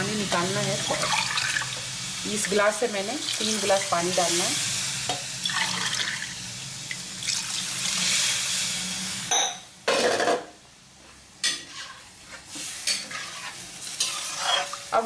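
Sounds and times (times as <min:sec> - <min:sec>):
water pouring into pan: 0:01.0 - 0:01.8, 0:05.4 - 0:06.4, 0:07.2 - 0:08.1.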